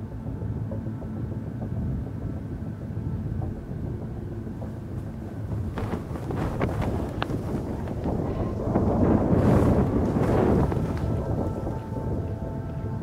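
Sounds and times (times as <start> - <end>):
wind buffeting microphone: 0.0 - 13.0
sharp crackles: 4.6 - 13.0.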